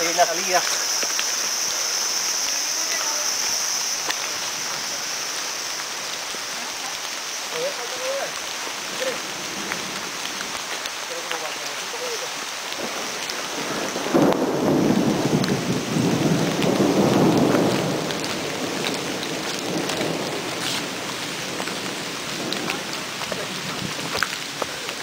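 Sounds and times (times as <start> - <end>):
rain falling on foliage: 0.0 - 25.0
roll of thunder: 12.8 - 20.6.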